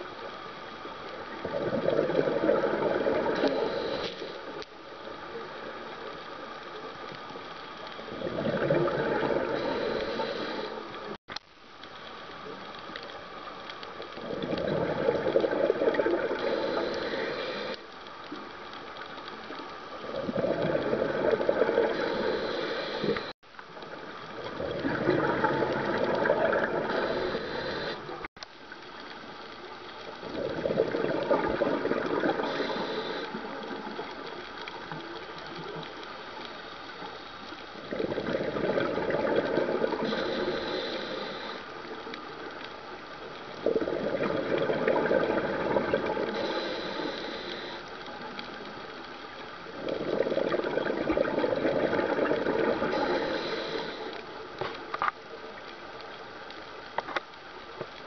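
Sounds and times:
underwater regulator bubbling exhalations: 1.4s - 4.0s, 8.1s - 10.8s, 14.2s - 17.7s, 20.0s - 23.3s, 24.4s - 28.2s, 30.2s - 33.9s, 37.8s - 41.6s, 43.6s - 47.8s, 49.7s - 54.1s.

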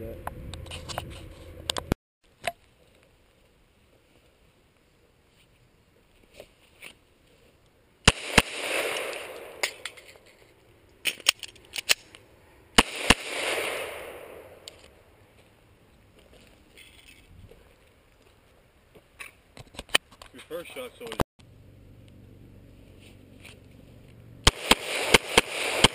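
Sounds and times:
pistol shots with rolling echo: 8.0s - 9.9s, 12.8s - 14.7s, 24.4s - 25.9s.

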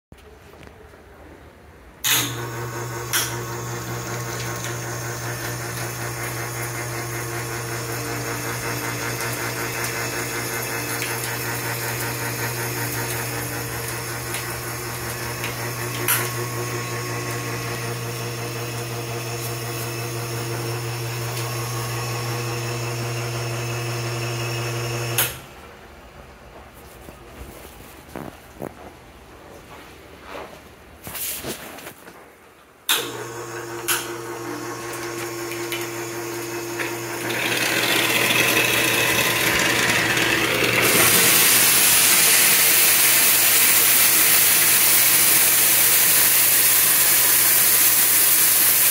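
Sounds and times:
pump motor humming: 2.0s - 25.4s, 32.9s - 48.9s
water running: 2.1s - 25.4s, 32.9s - 48.9s.

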